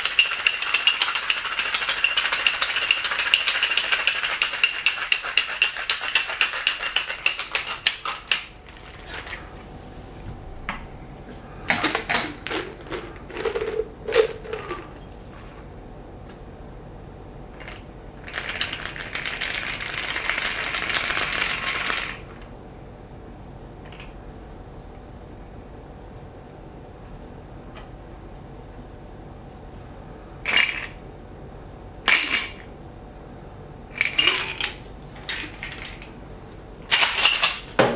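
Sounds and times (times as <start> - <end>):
ice rattling in metal shaker: 0.0 - 9.3, 12.6 - 15.0, 17.5 - 22.2.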